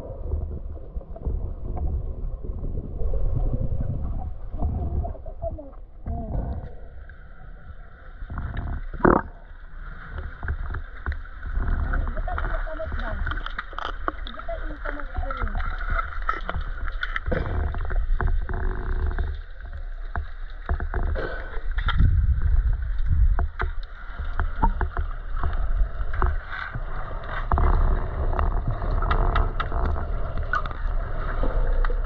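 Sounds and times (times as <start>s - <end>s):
steady low rumble: 0.0s - 32.0s
water sloshing and lapping: 0.0s - 32.0s
small clicks and splashes: 8.2s - 32.0s.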